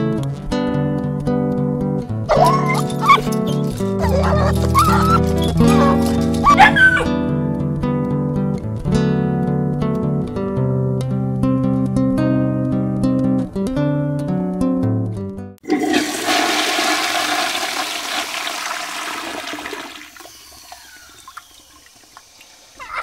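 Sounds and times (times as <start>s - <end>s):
acoustic guitar music: 0.0s - 15.6s
toilet flushing: 15.6s - 22.4s.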